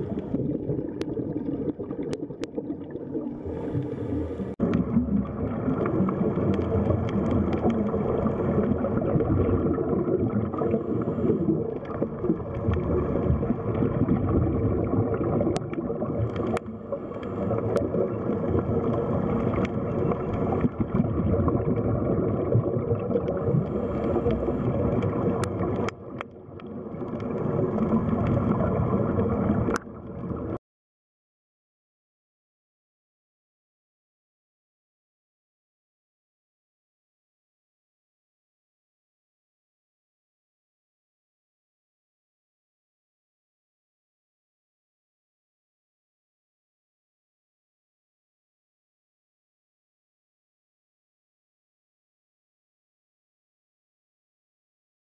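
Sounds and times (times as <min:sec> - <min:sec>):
underwater rushing of water: 0:00.0 - 0:30.6.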